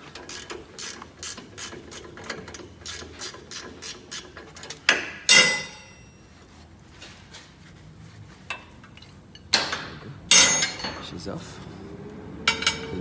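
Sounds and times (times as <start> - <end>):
ratchet wrench clicking: 0.1 - 4.8
loud metal clanks ringing: 5.3 - 6.1, 9.6 - 11.1, 12.5 - 13.0.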